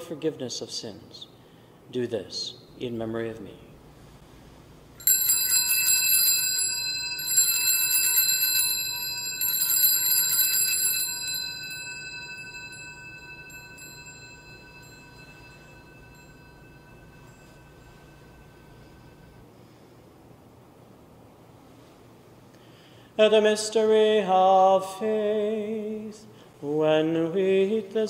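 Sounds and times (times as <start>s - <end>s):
altar bells ringing: 5.0s - 19.5s.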